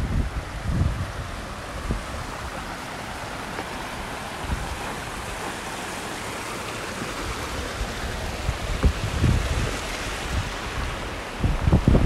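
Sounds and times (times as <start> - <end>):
wind buffeting microphone: 0.0 - 2.8, 4.2 - 5.8, 7.2 - 12.0
water rushing over concrete steps: 0.0 - 12.0.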